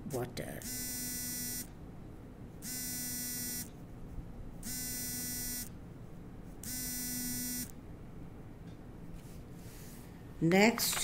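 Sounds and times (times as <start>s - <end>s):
electronic buzzer beeping: 0.6s - 1.7s, 2.6s - 3.7s, 4.6s - 5.8s, 6.6s - 7.8s.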